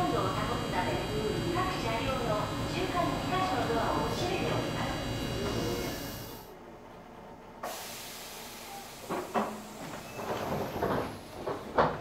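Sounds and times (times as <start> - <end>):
air hissing: 7.6 - 11.2.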